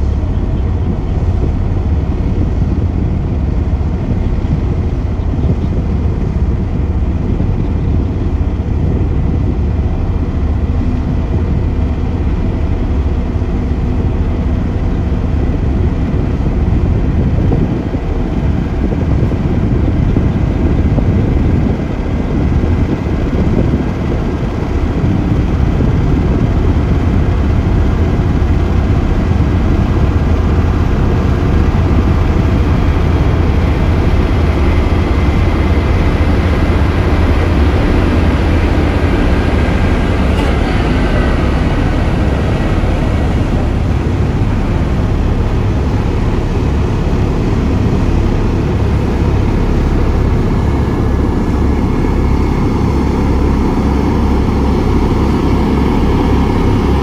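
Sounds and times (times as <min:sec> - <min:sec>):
road rollers diesel rumble: 0:00.0 - 0:57.0.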